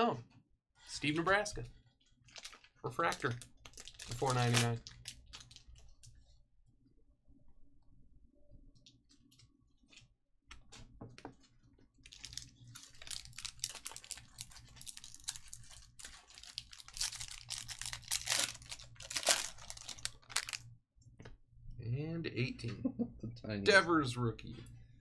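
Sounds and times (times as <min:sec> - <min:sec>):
foil wrapper crinkling and tearing: 0:02.2 - 0:06.0, 0:12.0 - 0:20.6.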